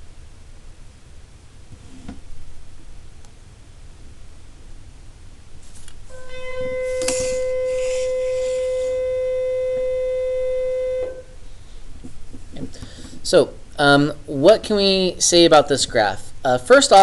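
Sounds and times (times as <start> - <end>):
steady pitched tone: 6.0 - 11.6.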